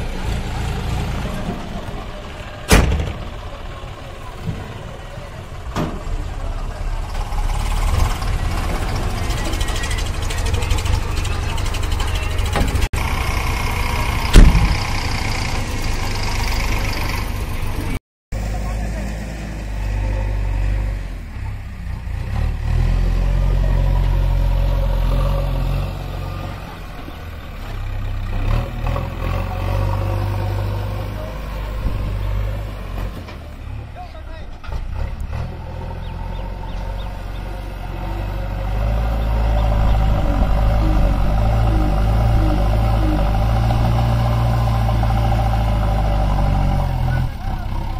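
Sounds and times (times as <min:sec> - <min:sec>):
tractor diesel engine running: 0:00.0 - 0:47.9
loud thump: 0:02.7 - 0:03.4, 0:14.3 - 0:14.9.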